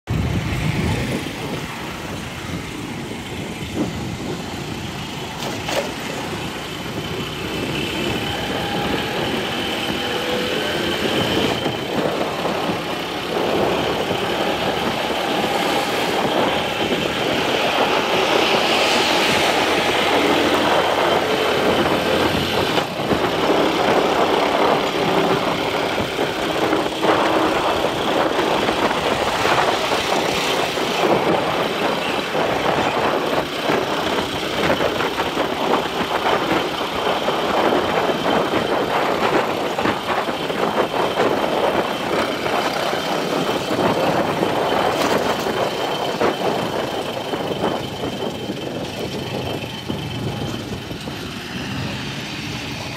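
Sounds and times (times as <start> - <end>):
road noise: 0.0 - 52.9
motorcycle engine: 0.1 - 52.9.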